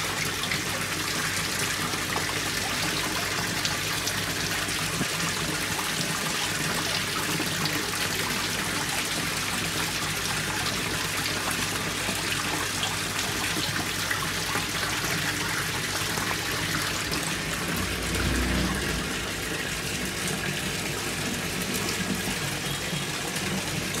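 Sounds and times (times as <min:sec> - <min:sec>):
pump humming: 0:00.0 - 0:24.0
water splashing and churning: 0:00.1 - 0:24.0
low rumble: 0:17.4 - 0:19.7.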